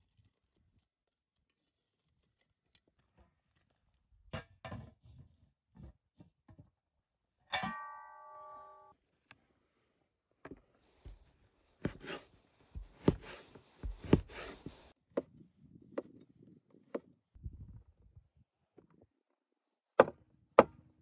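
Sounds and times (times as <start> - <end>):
metal lid clanking: 7.5 - 8.4
cleaver chopping on wooden board: 12.8 - 14.6.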